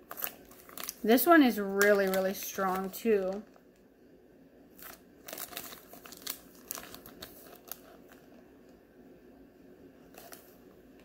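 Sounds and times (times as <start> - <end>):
plastic wrapper crinkling: 0.0 - 3.8, 4.7 - 8.4, 10.1 - 10.8.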